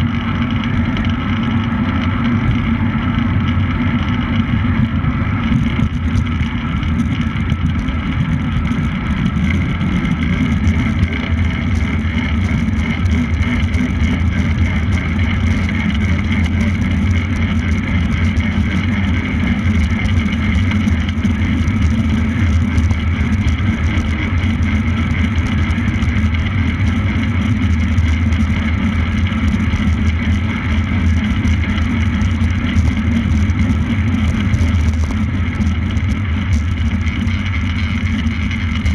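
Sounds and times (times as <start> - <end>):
bicycle tyres rolling: 0.0 - 38.9
constant low hum: 0.0 - 38.9.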